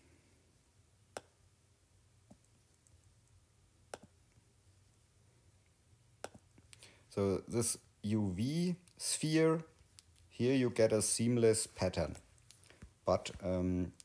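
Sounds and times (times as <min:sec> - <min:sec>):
taps on a touchscreen: 0:06.2 - 0:06.4.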